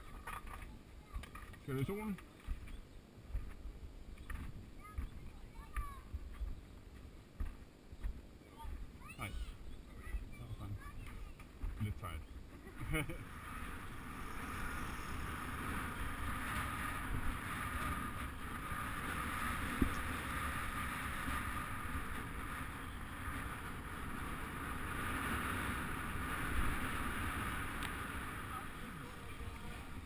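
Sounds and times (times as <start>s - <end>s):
bike tyres rolling on asphalt: 11.2s - 30.0s
wind rushing over microphone: 12.8s - 30.0s.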